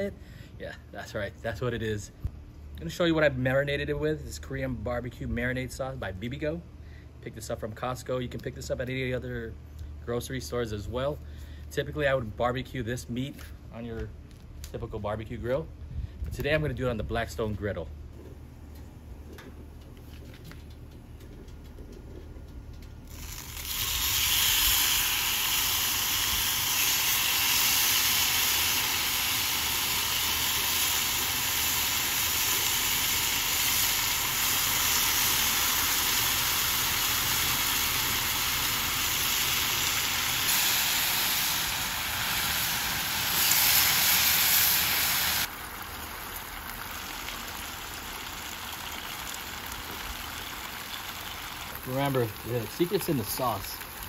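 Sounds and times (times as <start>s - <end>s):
meat sizzling on a griddle: 23.1s - 54.0s.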